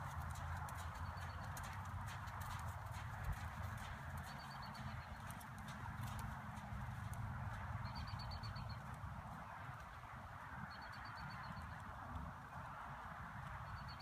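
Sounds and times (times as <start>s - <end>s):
horse hoofbeats on soft ground: 0.0s - 10.0s.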